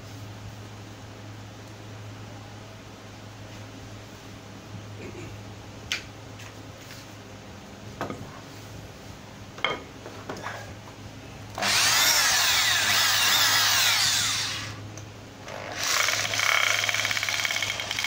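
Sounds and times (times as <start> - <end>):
hammer drill boring into wood: 11.6 - 14.8, 15.5 - 18.0.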